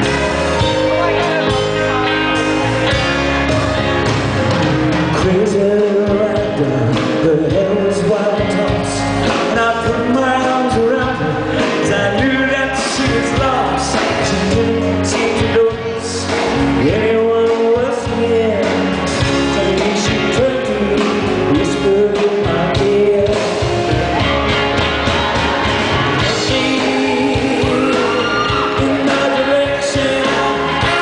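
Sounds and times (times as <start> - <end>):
live rock band playing: 0.0 - 31.0
man singing lead vocal: 5.1 - 24.4, 26.0 - 31.0.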